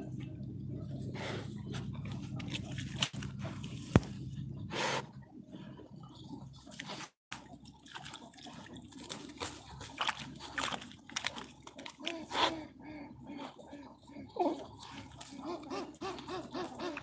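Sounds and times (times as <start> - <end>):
straw and soil rustling: 0.0 - 5.0, 5.6 - 12.5
dogs sniffing and snuffling: 0.0 - 17.0.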